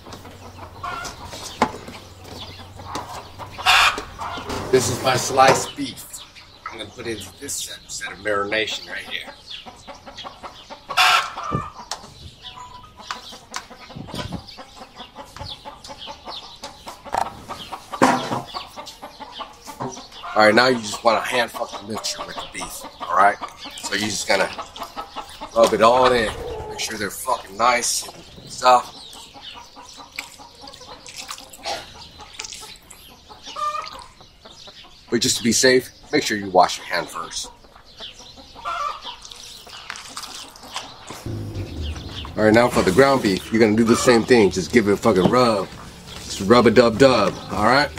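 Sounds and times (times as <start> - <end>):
chickens clucking: 0.0 - 47.9
chicken long loud call: 26.0 - 27.2
hands squishing wet meat: 30.0 - 34.1, 39.2 - 40.9.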